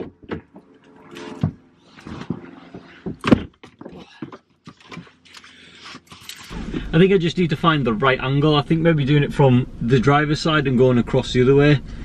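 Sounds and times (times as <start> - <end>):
knocks and thuds: 2.2 - 4.4.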